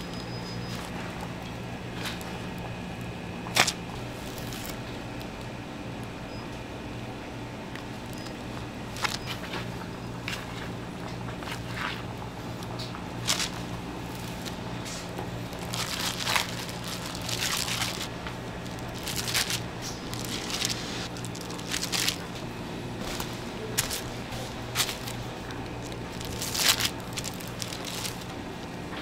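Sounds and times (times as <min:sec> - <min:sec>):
steady low hum: 0:00.0 - 0:29.0
plastic wrap crinkling: 0:03.5 - 0:05.0, 0:07.8 - 0:29.0.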